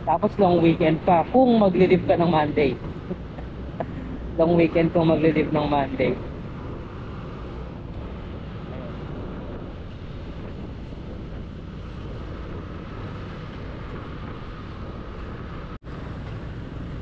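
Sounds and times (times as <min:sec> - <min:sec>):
road noise: 0:00.0 - 0:17.0
wind noise: 0:00.0 - 0:17.0.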